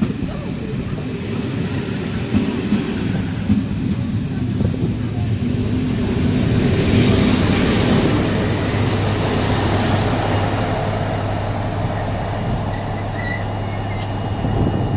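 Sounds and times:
diesel locomotive engine droning: 0:00.0 - 0:14.9
train wheels rumbling on rails: 0:00.0 - 0:14.9.

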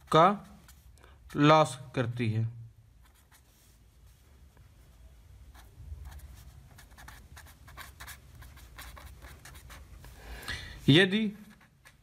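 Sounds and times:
pen writing on paper: 0:05.6 - 0:09.8.

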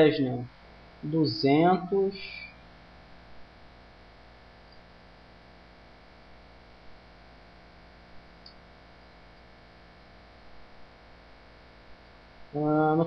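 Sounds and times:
faint hiss: 0:00.0 - 0:02.6, 0:12.5 - 0:13.0
electrical mains hum: 0:00.0 - 0:13.0.

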